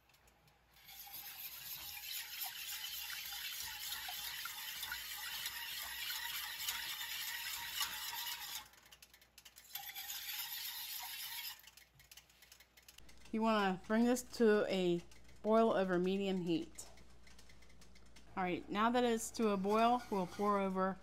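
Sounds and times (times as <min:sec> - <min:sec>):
whisk beating sauce in a saucepan: 0:00.8 - 0:08.9, 0:09.5 - 0:12.3, 0:19.0 - 0:20.8.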